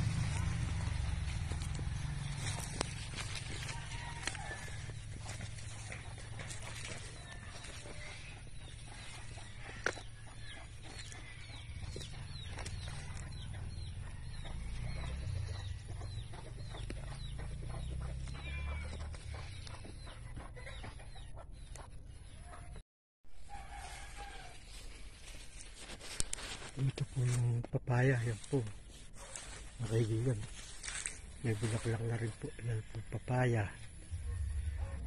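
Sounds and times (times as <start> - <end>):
low steady rumble: 0.0 - 16.6, 33.8 - 35.0
chickens calling: 0.0 - 22.8, 23.4 - 35.0.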